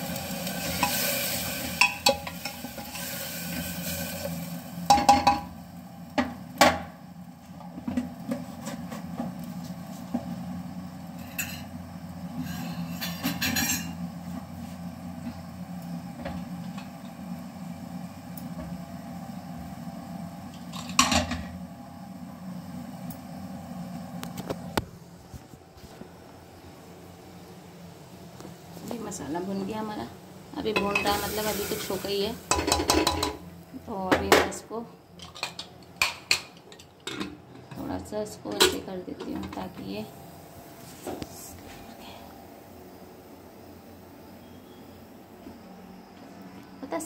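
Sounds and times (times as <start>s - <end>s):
steady low hum: 0.0s - 47.0s
kitchen utensils clanking: 0.5s - 3.8s, 12.4s - 14.0s, 30.7s - 33.4s.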